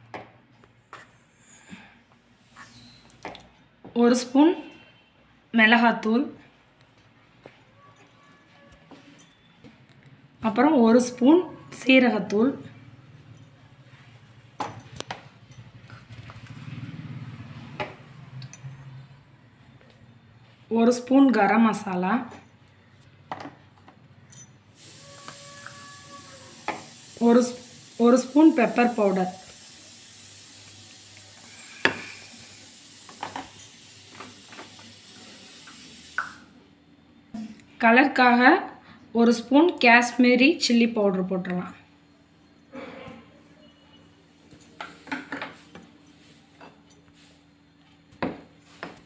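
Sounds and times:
faint hiss: 0:24.7 - 0:36.5.

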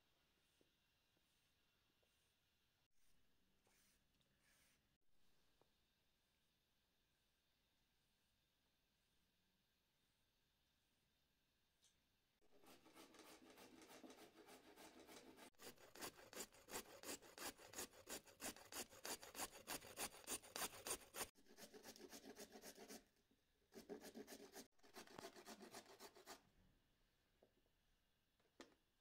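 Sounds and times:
carrot grating on metal grater: 0:12.5 - 0:22.8.

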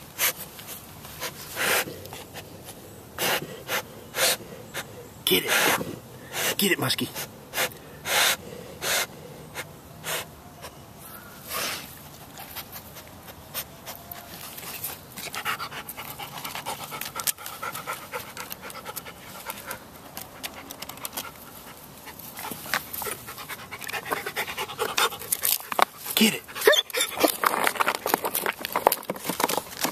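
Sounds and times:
dog sniffing: 0:00.1 - 0:10.8, 0:11.4 - 0:29.9
dog panting: 0:12.3 - 0:28.8.

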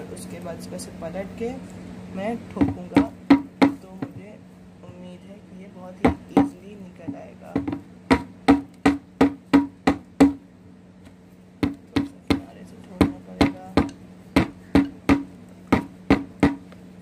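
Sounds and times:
hollow knocks on plant pot: 0:06.0 - 0:10.4, 0:11.6 - 0:16.7.

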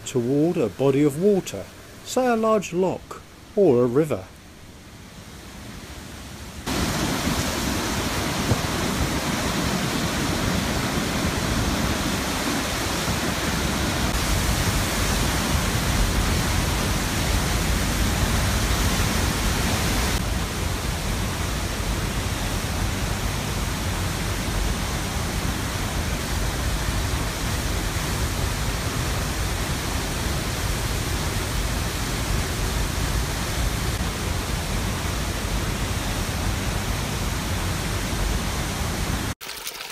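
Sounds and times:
waterfall crashing over rock: 0:06.7 - 0:39.4.

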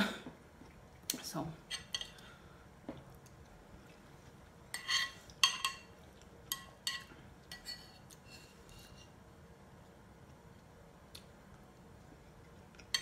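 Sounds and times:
metal spoon clinking on bowl: 0:04.7 - 0:05.9.

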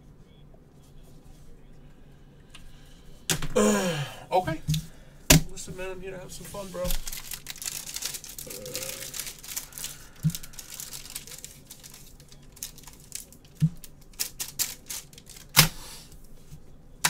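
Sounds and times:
light crinkling: 0:06.4 - 0:15.6.

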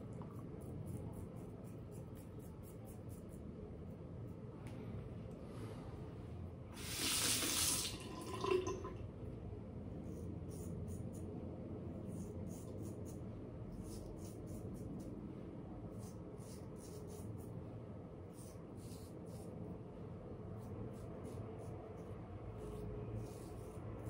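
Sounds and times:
water running: 0:06.8 - 0:09.0.

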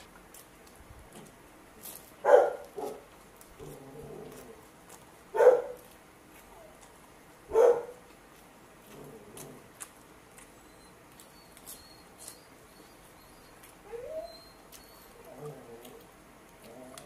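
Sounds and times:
dog barking: 0:02.2 - 0:03.1, 0:05.4 - 0:05.8, 0:07.5 - 0:08.0.

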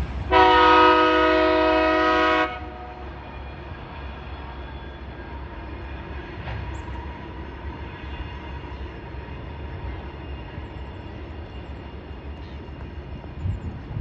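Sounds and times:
distant train rumble: 0:00.0 - 0:14.0.

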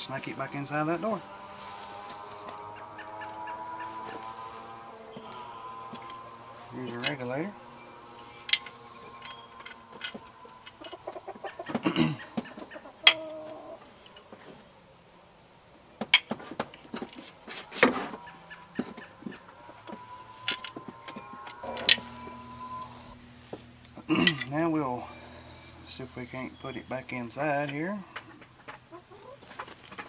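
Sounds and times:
chickens clucking: 0:00.0 - 0:15.1, 0:15.7 - 0:30.0
metal clinks and knocks: 0:07.8 - 0:12.4, 0:18.8 - 0:22.2.

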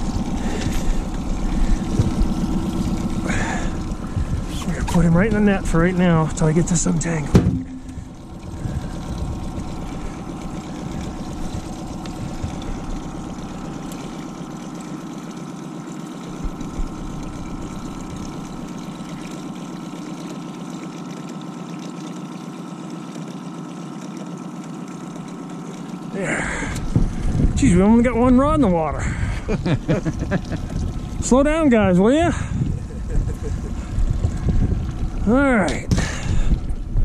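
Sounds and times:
outboard motor running: 0:00.0 - 0:37.0
brief knocks: 0:07.3 - 0:08.0.

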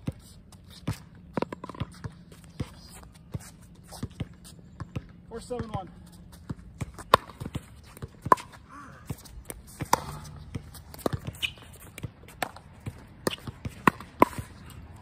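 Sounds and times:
shoe scuffs on court: 0:00.1 - 0:04.9, 0:06.1 - 0:12.0.

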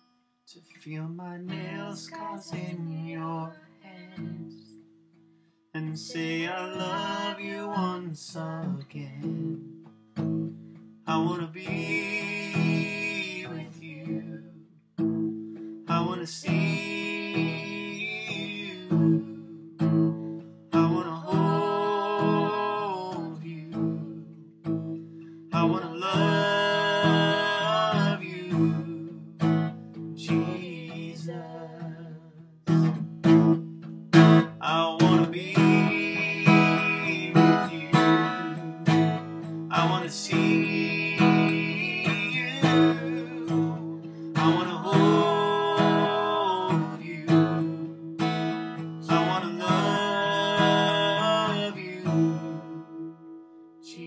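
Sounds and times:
acoustic guitar strumming: 0:01.4 - 0:53.8
person singing long notes: 0:01.5 - 0:04.5, 0:05.8 - 0:08.5, 0:11.5 - 0:14.5, 0:20.8 - 0:23.9.

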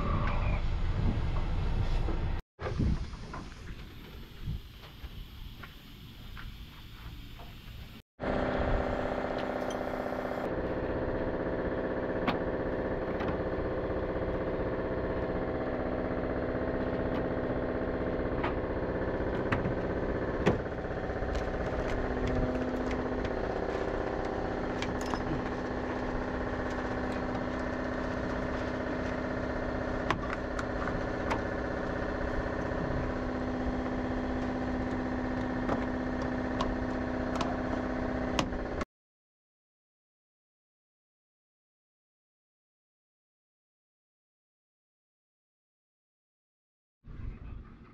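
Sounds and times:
motor humming: 0:08.2 - 0:38.8.

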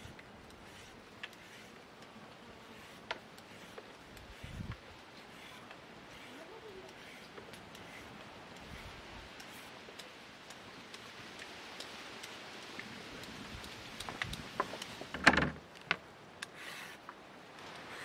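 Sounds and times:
peeler scraping carrot: 0:00.0 - 0:10.1, 0:16.4 - 0:17.0, 0:17.7 - 0:18.0.

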